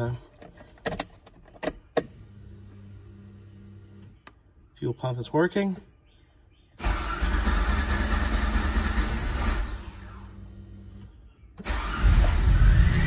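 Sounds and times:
car engine starting and running: 6.8 - 13.0.

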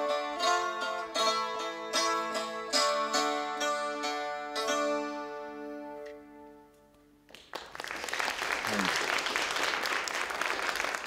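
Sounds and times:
mandolin plucked chords: 0.0 - 7.2.

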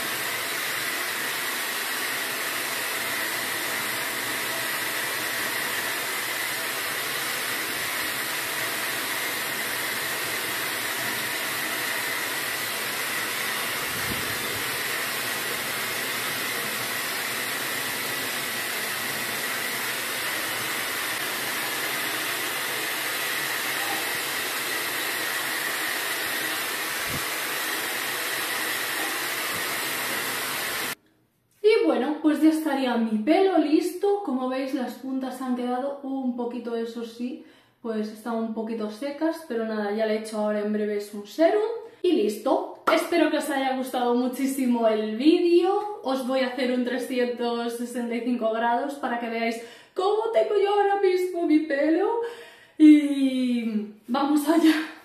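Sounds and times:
hair dryer running: 0.0 - 31.0.

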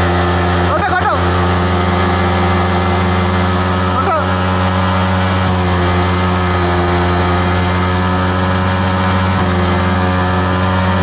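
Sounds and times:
motorcycle engine at full throttle: 0.0 - 11.0.

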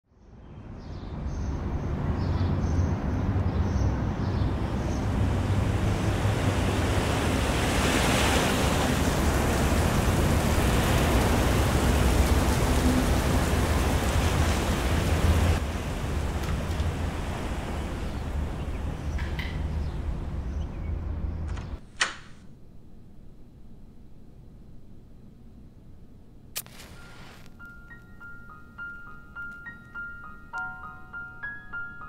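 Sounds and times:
rushing ambient noise: 1.2 - 21.5.

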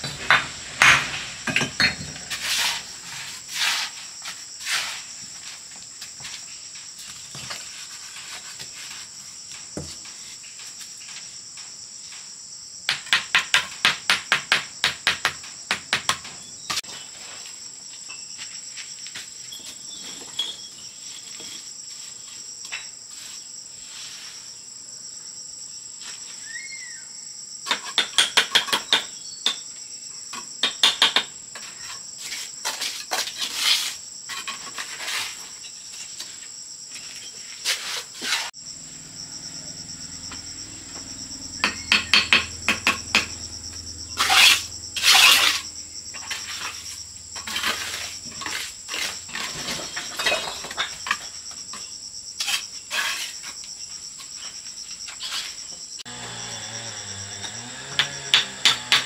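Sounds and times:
crickets chirring: 0.0 - 59.0.

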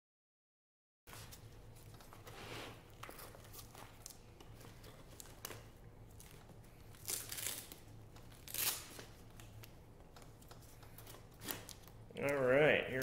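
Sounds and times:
velcro ripping: 6.2 - 9.5, 11.3 - 12.0.

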